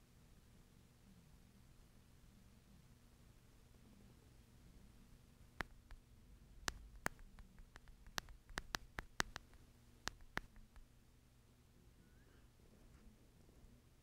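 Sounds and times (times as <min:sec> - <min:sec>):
faint steady hum: 0:00.0 - 0:14.0
light sharp clicks: 0:05.6 - 0:10.9.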